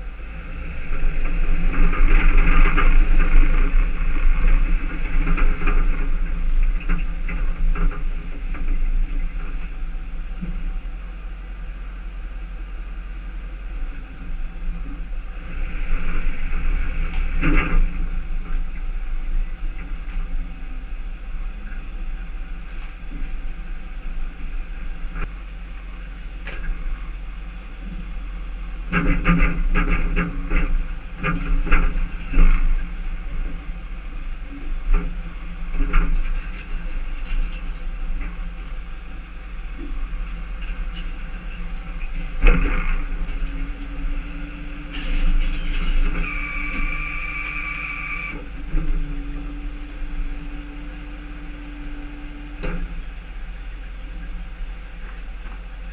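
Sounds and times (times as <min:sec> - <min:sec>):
tow truck engine running: 0:00.0 - 0:55.9
rattling and clicking: 0:00.8 - 0:09.7.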